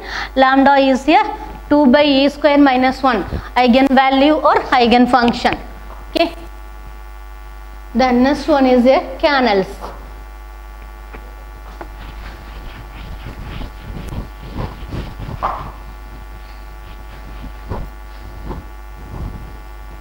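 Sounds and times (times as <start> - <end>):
steady mains hum: 0.0 - 20.0
marker pen scratching on whiteboard: 11.6 - 18.7.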